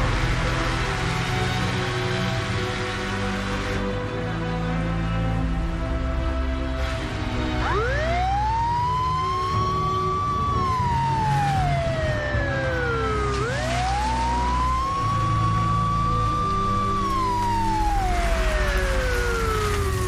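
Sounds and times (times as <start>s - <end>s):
background music: 0.0s - 20.0s
police siren wailing: 7.6s - 20.0s.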